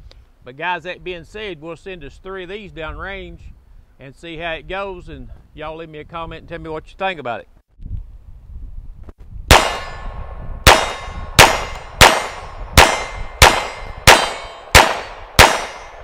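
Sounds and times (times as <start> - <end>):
pistol shots: 9.5 - 16.0.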